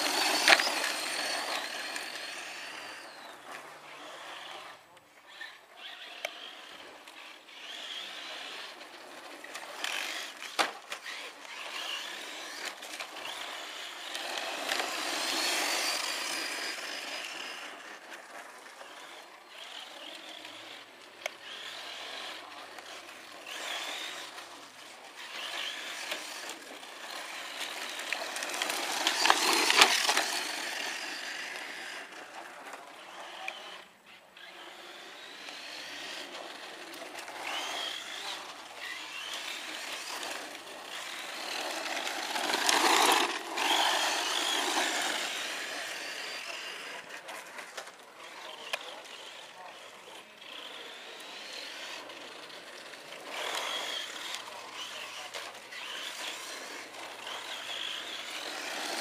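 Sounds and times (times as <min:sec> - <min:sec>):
rc truck motor whine: 0:00.0 - 0:59.0
tyres on loose stones: 0:25.2 - 0:33.8.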